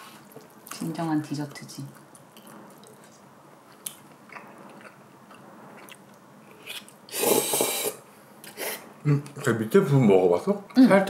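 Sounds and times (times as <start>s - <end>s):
person chewing food: 1.9s - 8.6s.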